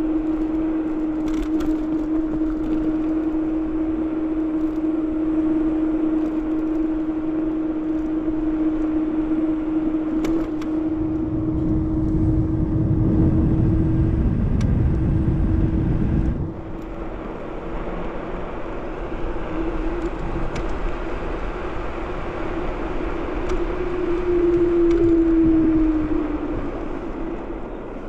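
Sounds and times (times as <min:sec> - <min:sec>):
electric scooter motor hum: 0:00.0 - 0:28.0
low rumble: 0:10.6 - 0:28.0.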